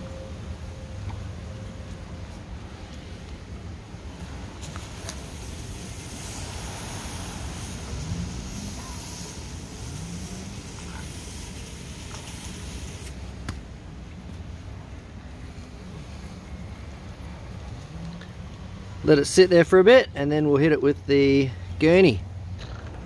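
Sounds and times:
aerosol can spraying: 4.6s - 13.5s.

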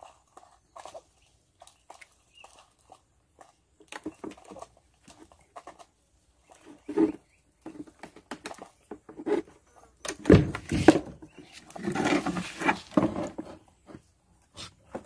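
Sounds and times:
duck dabbling and clicking: 0.0s - 10.2s.

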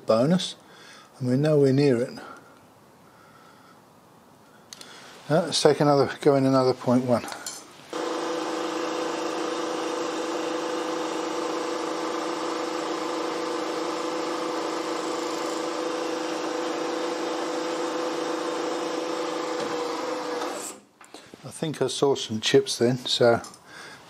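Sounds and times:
milling machine humming: 8.0s - 20.8s.

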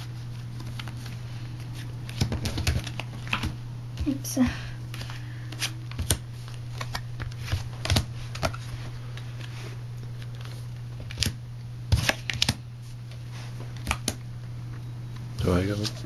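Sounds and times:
steady low hum: 0.0s - 16.0s
playing cards slapping on wood: 0.6s - 4.1s, 4.9s - 8.7s, 10.2s - 12.6s, 13.7s - 14.2s.

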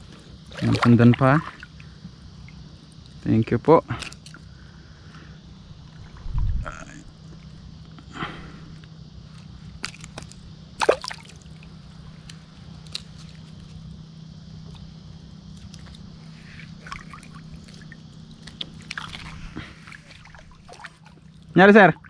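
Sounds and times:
shallow water sloshing and trickling: 0.0s - 3.2s, 9.4s - 11.9s, 15.5s - 22.0s
low hum: 4.2s - 21.5s.

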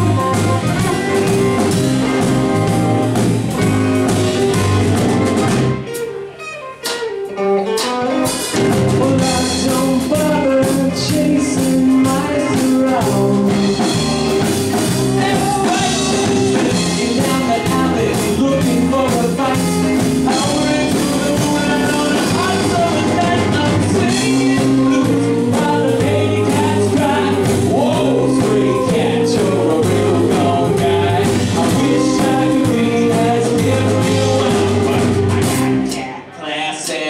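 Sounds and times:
drum kit: 0.0s - 36.1s
electric guitar: 0.0s - 36.2s
keyboard: 0.0s - 36.2s
bass guitar: 0.0s - 36.3s
man singing into a microphone: 9.0s - 14.2s, 15.2s - 35.3s.

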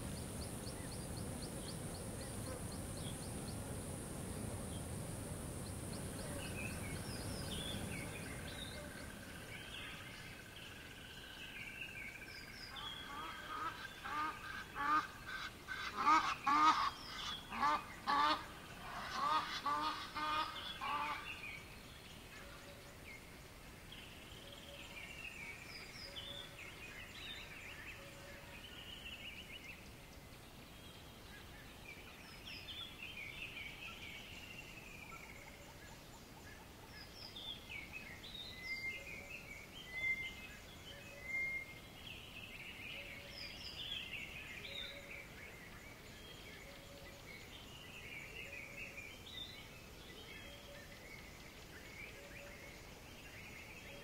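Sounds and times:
faint background hiss: 0.0s - 54.0s
small birds chirping: 0.0s - 54.0s.

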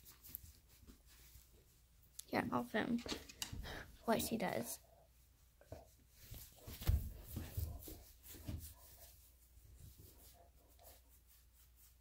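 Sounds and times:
phone brushing against fur: 5.4s - 12.0s
hand scratching dog fur: 5.6s - 12.0s.

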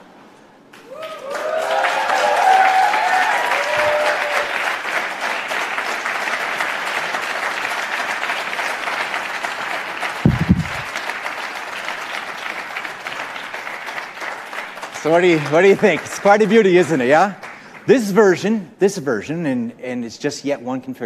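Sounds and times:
audience applauding: 0.7s - 18.0s
whoops and cheers: 0.8s - 4.6s.

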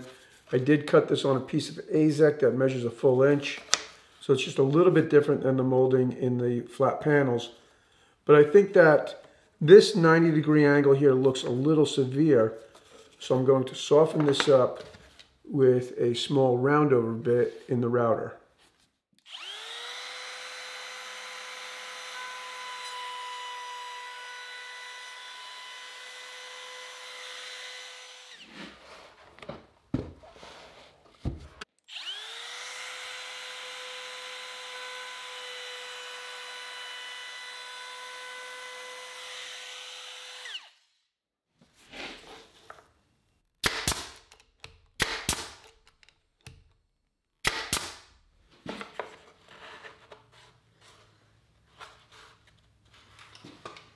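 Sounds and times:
router running: 19.3s - 28.4s, 31.9s - 40.8s.

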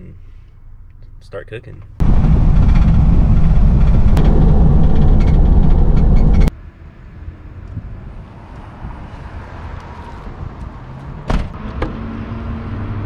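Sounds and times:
van road and engine noise: 0.0s - 13.0s.

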